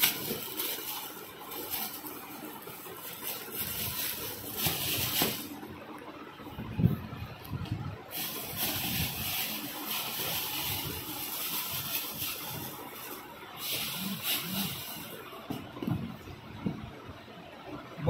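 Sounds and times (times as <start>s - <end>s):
plastic wrapping crinkling: 0.0s - 5.7s, 8.1s - 15.4s.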